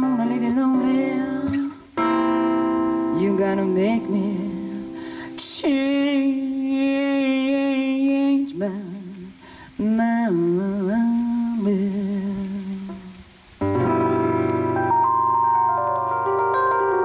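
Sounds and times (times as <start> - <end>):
woman singing long notes: 0.0 - 2.2, 3.0 - 13.3.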